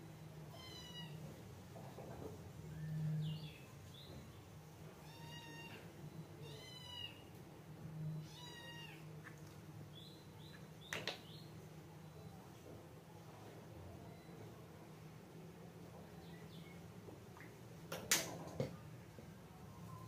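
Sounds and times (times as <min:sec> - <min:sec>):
kitten meowing: 0:05.0 - 0:05.8, 0:08.2 - 0:09.0.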